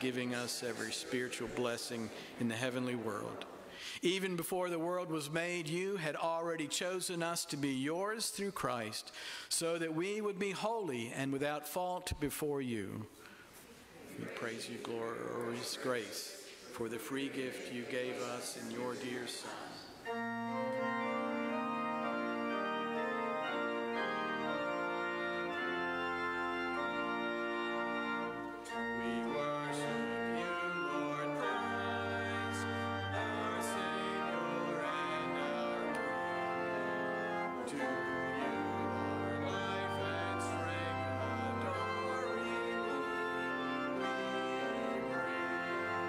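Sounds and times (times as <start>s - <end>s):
church organ playing hymn: 0.0s - 13.1s, 14.4s - 16.1s, 16.8s - 46.0s
deep organ pedal bass notes: 20.0s - 46.0s.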